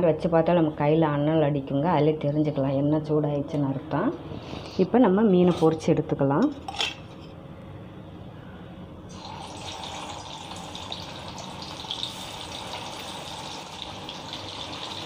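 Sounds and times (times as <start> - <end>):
fish sizzling in hot oil: 9.1 - 15.0.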